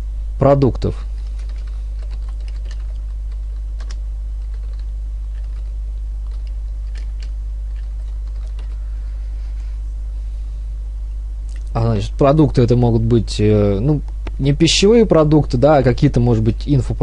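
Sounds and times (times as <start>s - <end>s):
steady low hum: 0.0s - 17.0s
keyboard typing clicks: 1.2s - 8.8s.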